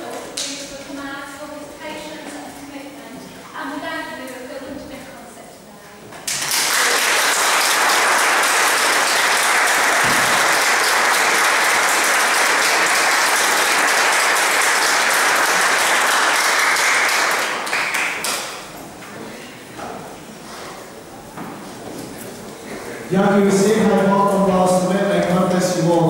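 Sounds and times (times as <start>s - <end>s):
audience applauding: 6.2s - 18.7s.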